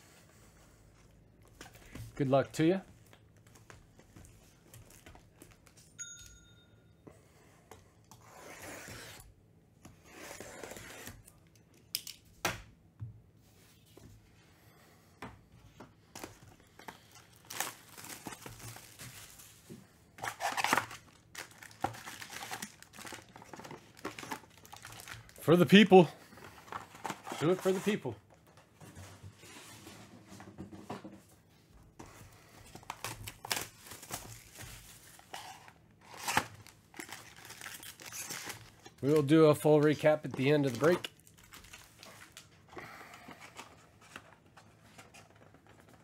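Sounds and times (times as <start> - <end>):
wrap tearing and crinkling: 20.2 - 25.4, 36.0 - 39.4.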